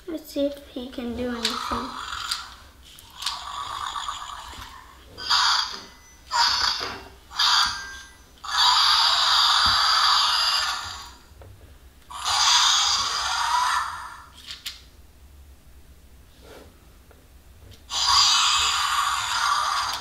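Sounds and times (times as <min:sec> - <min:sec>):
electronic toy dinosaur roars: 0:01.4 - 0:02.6, 0:03.2 - 0:11.2, 0:12.1 - 0:14.4, 0:17.9 - 0:20.0.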